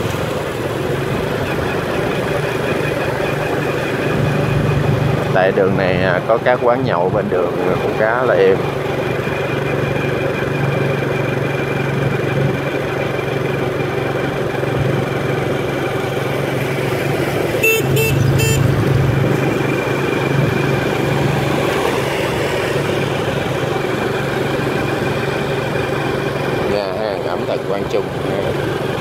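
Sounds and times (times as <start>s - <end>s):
motorbike engine running: 0.0s - 29.0s
road and wind noise: 0.0s - 29.0s
vehicle horn beeps: 17.6s - 18.8s.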